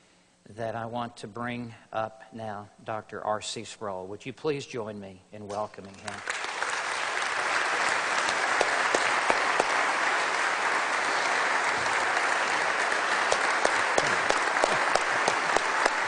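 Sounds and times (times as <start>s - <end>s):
audience applauding: 5.8s - 16.0s.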